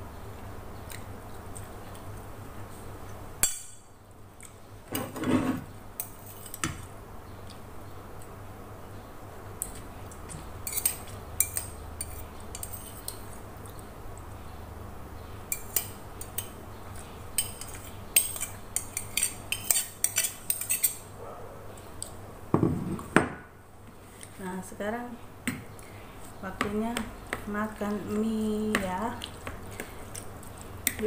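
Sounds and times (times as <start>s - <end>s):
metal spoon scraping ceramic plate: 5.0s - 6.6s, 17.4s - 21.0s.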